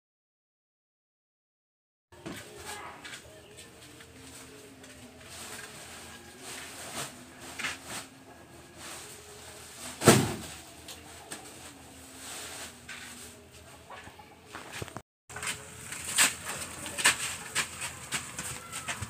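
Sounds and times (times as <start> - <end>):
plastic sacks rustling: 4.0 - 13.5
heavy sack landing with thud: 9.8 - 10.6.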